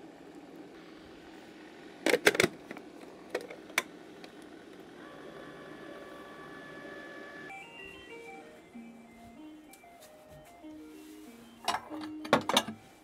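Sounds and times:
faint steady electronic tone: 4.9s - 13.0s
stepped beep-like melody: 7.5s - 13.0s.

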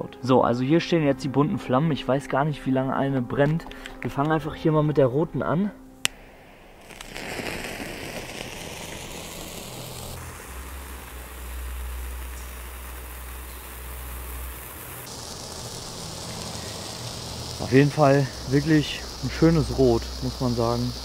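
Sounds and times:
firework burning with hiss: 6.0s - 21.0s.

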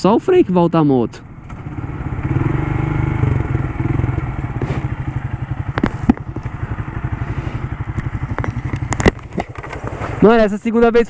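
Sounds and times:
motorcycle engine throbbing: 0.0s - 10.6s
sharp clicks: 7.9s - 10.0s.

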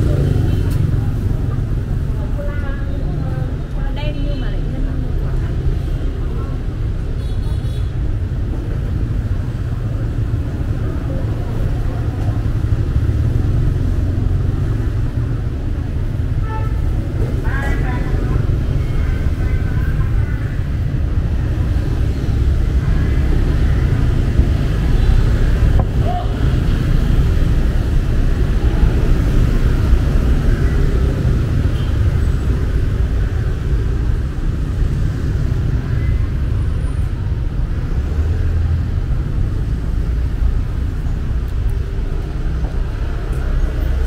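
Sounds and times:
street traffic rumble: 0.0s - 44.0s.

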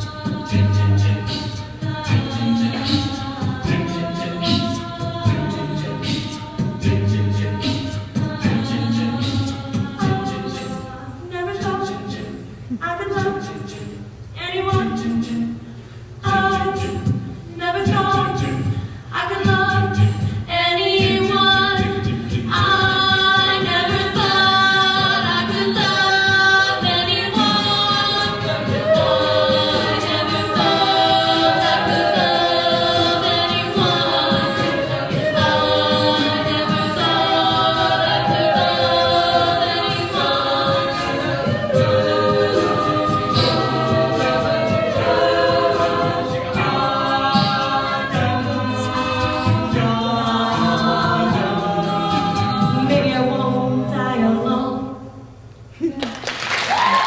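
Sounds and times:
a cappella group singing: 0.0s - 55.5s.

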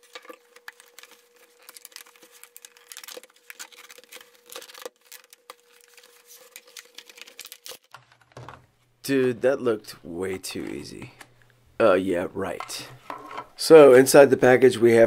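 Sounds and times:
plastic packaging crackling: 0.0s - 8.5s.

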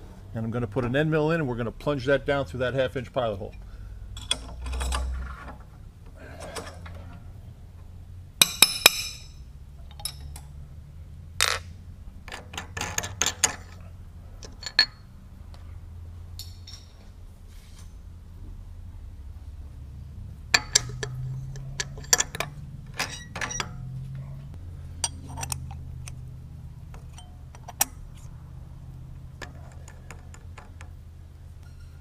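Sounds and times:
steady low hum: 0.0s - 32.0s
metal tooling clinking: 3.4s - 7.2s, 8.4s - 10.6s, 11.4s - 15.2s, 16.4s - 17.1s, 20.5s - 28.3s, 28.9s - 32.0s
ringing metal strikes: 8.4s - 9.4s.

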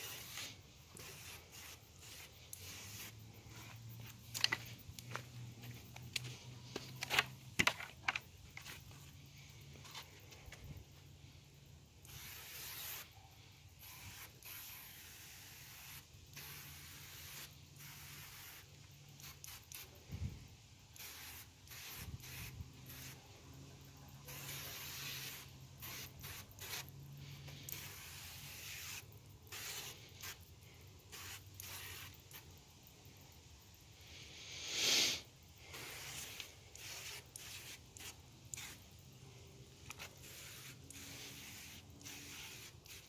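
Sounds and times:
pressure sprayer hissing: 0.0s - 7.9s, 34.4s - 38.9s, 39.8s - 43.0s.

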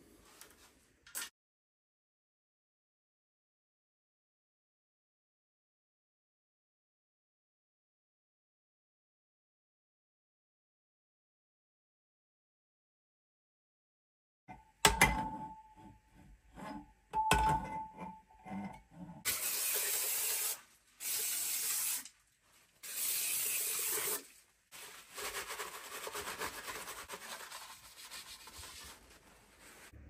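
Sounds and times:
aerosol spray hissing: 22.8s - 24.2s.

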